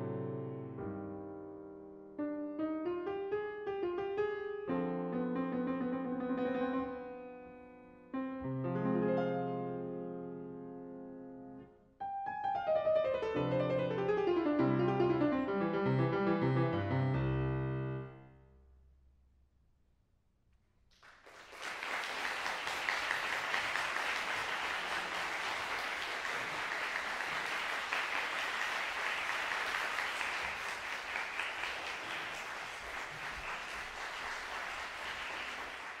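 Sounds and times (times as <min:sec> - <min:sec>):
audience applause: 0:21.0 - 0:36.0.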